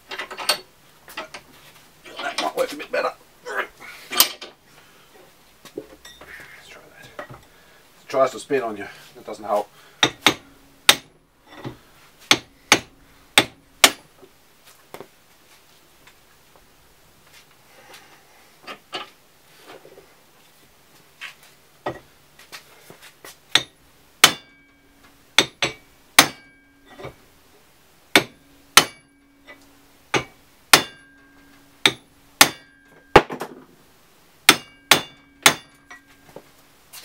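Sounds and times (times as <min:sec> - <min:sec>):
steel shaft ringing: 0:06.0 - 0:06.4, 0:24.3 - 0:25.1, 0:25.7 - 0:27.0, 0:28.2 - 0:29.7, 0:30.7 - 0:33.2, 0:34.5 - 0:36.3
hammer striking metal: 0:10.0 - 0:14.0, 0:23.5 - 0:24.8, 0:25.4 - 0:27.2, 0:28.1 - 0:33.3, 0:34.5 - 0:36.2.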